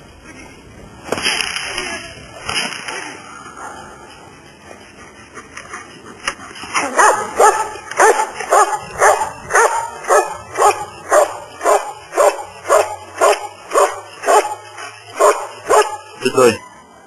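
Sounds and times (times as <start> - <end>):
dog barking rhythmically: 6.9 - 16.2.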